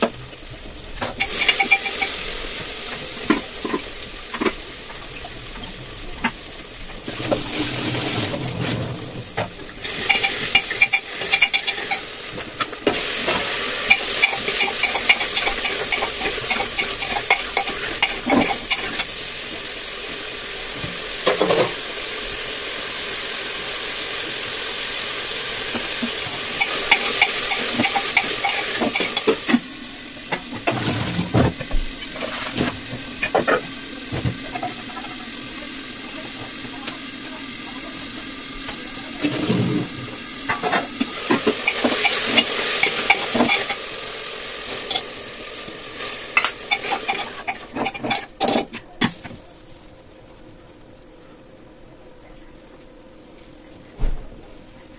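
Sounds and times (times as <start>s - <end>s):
water running in steel pot: 0.0s - 50.8s
metal pots clanking: 1.0s - 2.2s, 3.2s - 4.6s, 9.8s - 19.1s, 25.8s - 29.6s, 39.2s - 43.8s, 46.3s - 49.2s.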